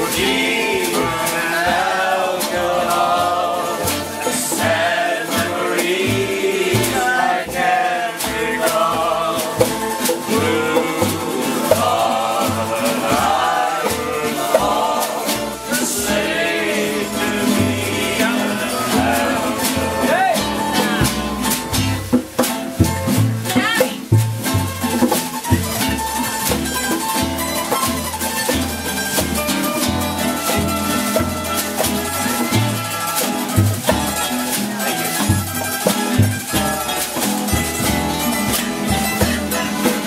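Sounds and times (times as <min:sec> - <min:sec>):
person singing: 0:00.0 - 0:21.4
acoustic guitars: 0:00.0 - 0:40.0
washtub bass: 0:00.0 - 0:40.0
snare drum: 0:06.5 - 0:16.3, 0:17.2 - 0:40.0.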